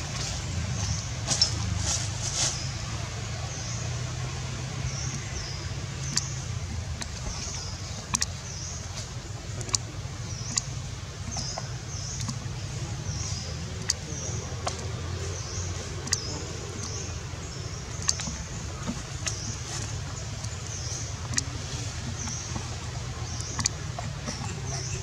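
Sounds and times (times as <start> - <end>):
sharp clicks: 6.0 - 8.4, 9.6 - 11.6, 12.2 - 12.4, 13.8 - 14.9, 16.0 - 17.1, 17.9 - 19.6, 20.4 - 24.8.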